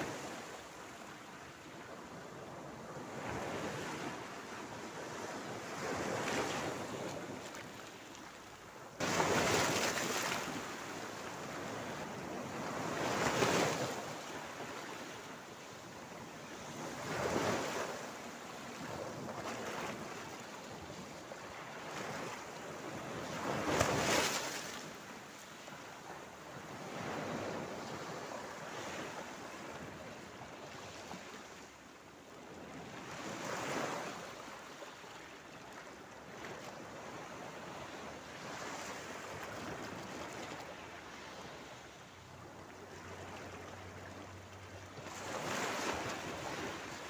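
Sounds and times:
sea waves breaking on rocks: 9.0s - 11.0s.

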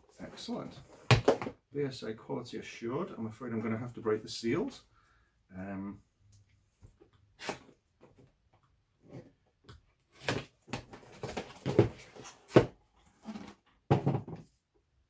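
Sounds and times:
cardboard rustling and scraping: 10.1s - 13.7s.

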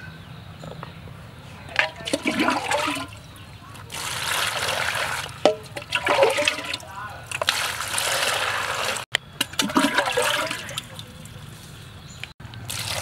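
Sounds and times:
water splashing in a plastic basin: 1.7s - 11.5s, 12.6s - 13.0s
water pouring from a scoop: 1.8s - 3.2s, 3.9s - 11.2s, 12.7s - 13.0s.

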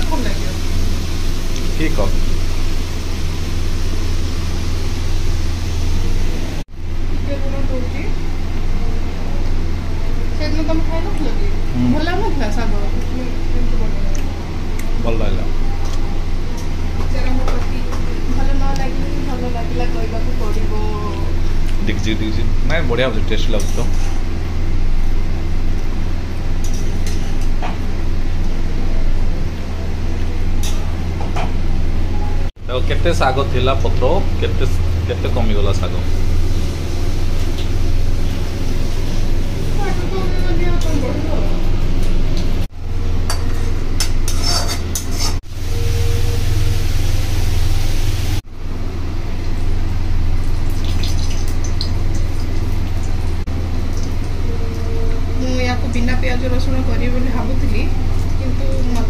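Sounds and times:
chillies crackling in hot oil: 0.0s - 6.6s, 34.4s - 41.0s, 49.4s - 54.4s
loud steady low hum: 0.0s - 59.0s
metal spatula scraping a pan: 44.0s - 45.4s.

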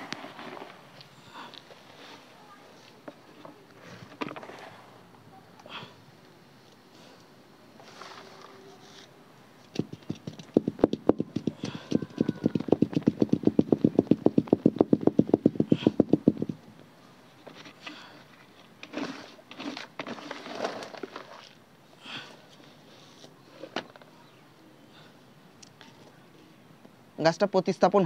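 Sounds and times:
soil rustling and scraping: 0.0s - 5.0s, 7.7s - 9.2s, 17.3s - 21.6s
hands patting soil: 9.6s - 16.6s.

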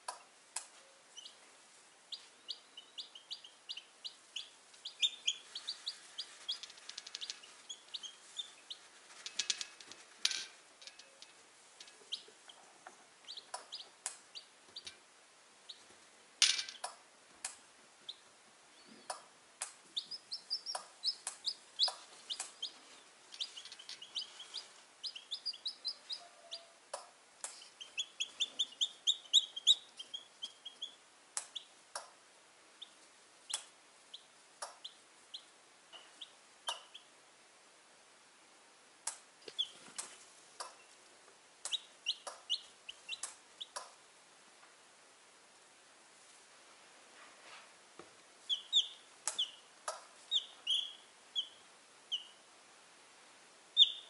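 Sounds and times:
chicks peeping: 0.0s - 1.5s, 2.1s - 10.1s, 11.9s - 15.0s, 15.6s - 16.0s, 16.8s - 32.1s, 32.8s - 37.1s, 39.1s - 41.0s, 41.6s - 44.0s, 48.4s - 52.4s, 53.8s - 54.0s.

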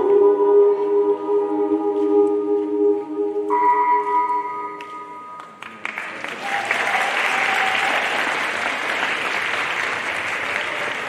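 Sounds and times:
audience applause: 5.6s - 11.0s.

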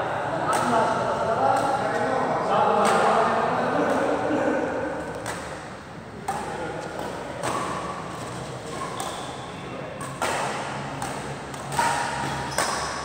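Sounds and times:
badminton racket hitting shuttlecock: 5.0s - 9.4s, 10.0s - 13.0s.

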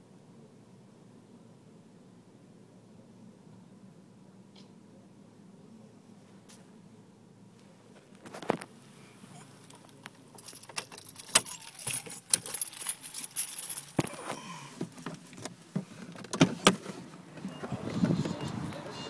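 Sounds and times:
light clinking and rattling: 9.3s - 16.7s.

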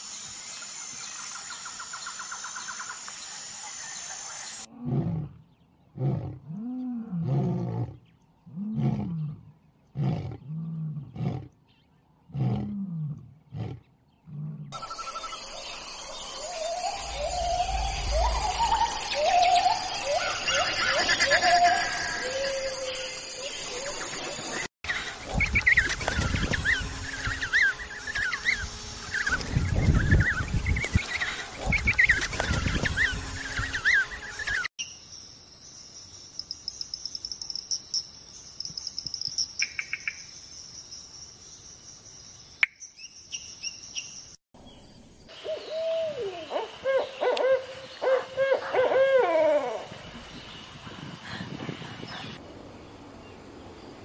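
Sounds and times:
large animal grunting and roaring: 4.7s - 11.6s, 12.3s - 14.8s
low rumbling noise: 16.7s - 20.0s
birds chirping: 36.1s - 54.0s.

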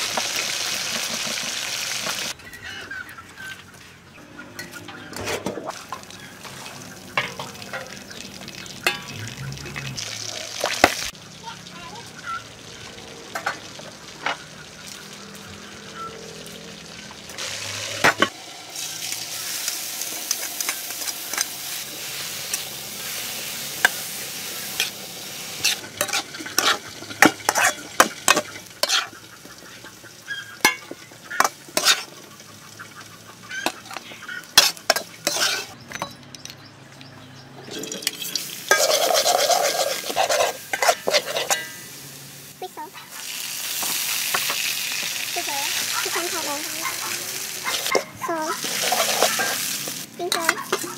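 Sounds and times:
ginger sizzling in oil: 0.0s - 2.4s, 5.7s - 35.8s, 38.0s - 50.9s
metal spatula scraping a wok: 4.5s - 5.7s, 19.5s - 29.9s, 30.6s - 32.2s, 33.6s - 35.8s, 37.8s - 42.0s, 47.7s - 50.9s.

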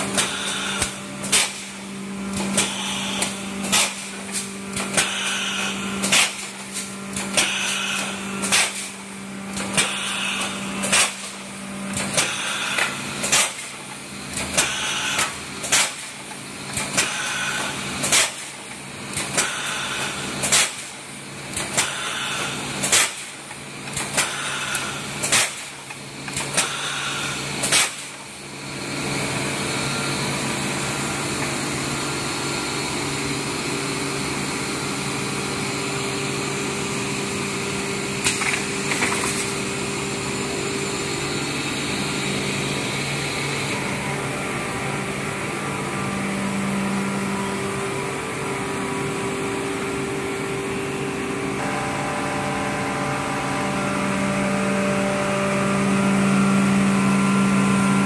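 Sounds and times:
welding machine metallic clacks: 0.0s - 28.3s
machine hum: 0.0s - 58.0s.

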